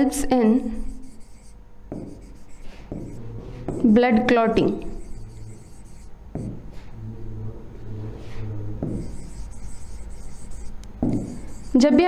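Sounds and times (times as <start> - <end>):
pen rubbing on writing board: 0.6 - 3.9, 4.6 - 6.8, 8.2 - 12.0.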